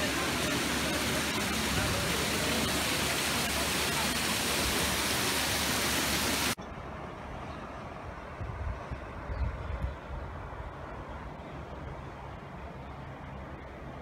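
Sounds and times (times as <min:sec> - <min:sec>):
fountain water splashing: 0:00.0 - 0:06.6.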